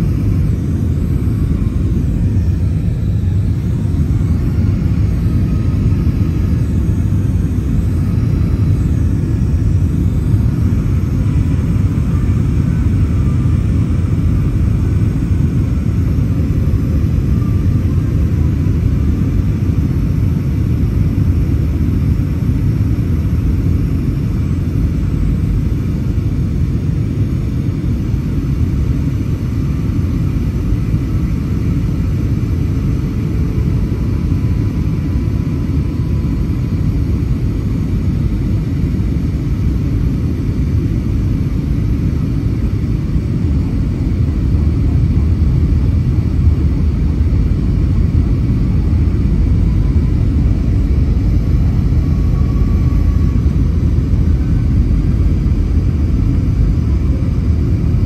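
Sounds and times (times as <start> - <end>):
airliner cabin rumble: 0.0 - 58.0.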